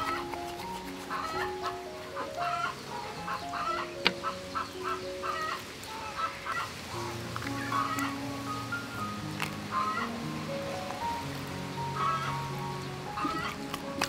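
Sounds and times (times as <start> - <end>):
chicken clucking: 0.0 - 6.7, 13.2 - 13.7
background music melody: 0.0 - 14.0.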